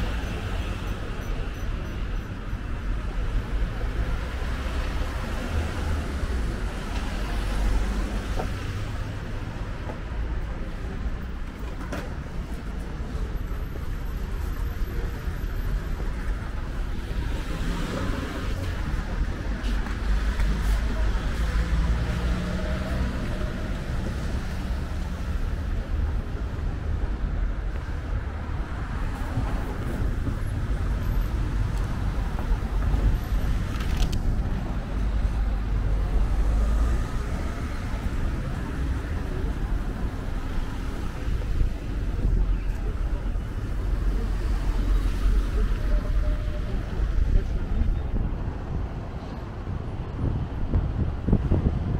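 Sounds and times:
traffic rumble: 0.0 - 51.9
wind buffeting microphone: 47.3 - 51.9.

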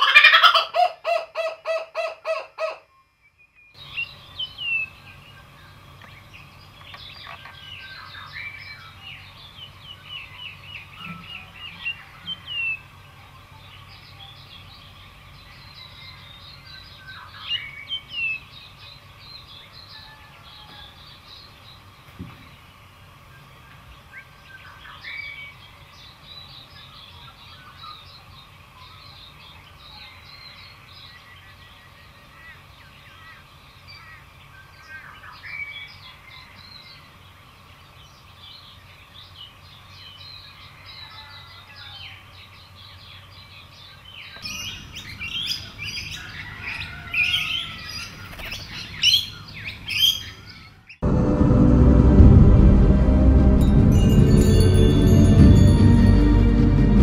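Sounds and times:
kookaburra cackling laugh: 0.0 - 2.8.

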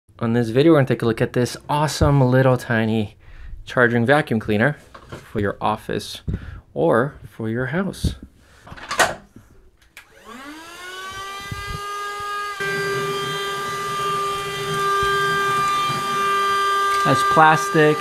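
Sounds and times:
handheld vacuum motor whining: 10.0 - 18.0.

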